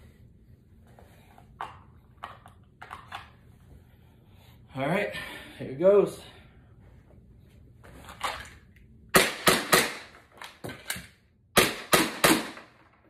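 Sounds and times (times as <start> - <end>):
pistol shots in a small room: 9.1 - 13.0.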